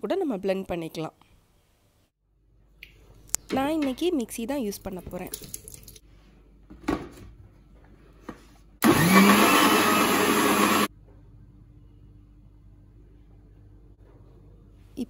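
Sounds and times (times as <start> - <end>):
mixer grinder motor whining: 8.8 - 10.9.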